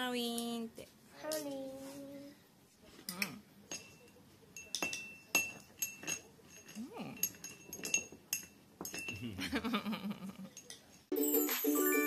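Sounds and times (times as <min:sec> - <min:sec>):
spoon clinking on ceramic bowl: 0:03.7 - 0:09.2.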